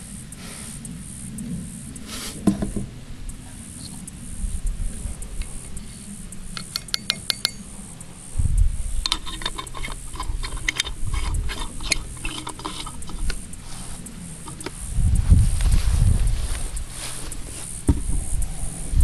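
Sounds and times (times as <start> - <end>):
low rumbling handling noise: 0.0 - 19.0
metal clinks and clicks: 5.3 - 7.8, 9.0 - 14.9.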